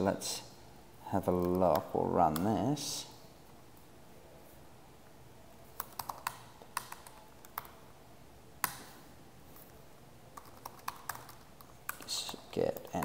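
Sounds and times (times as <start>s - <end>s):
computer keyboard keystrokes: 1.3s - 2.5s, 5.7s - 7.8s, 10.4s - 13.0s.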